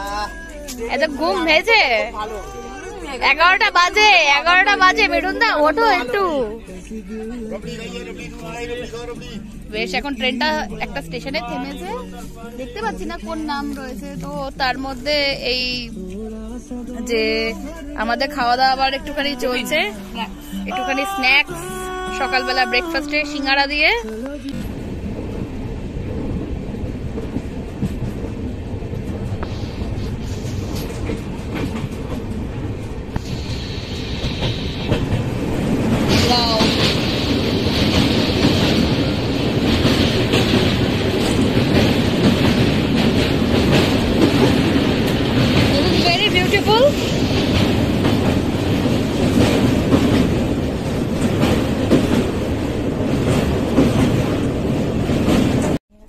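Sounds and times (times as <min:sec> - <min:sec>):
rail clicks: 0:00.0 - 0:55.8
train wheels rumbling on track: 0:00.0 - 0:55.8
wheels clacking over rail joints: 0:30.4 - 0:33.5, 0:34.2 - 0:55.8.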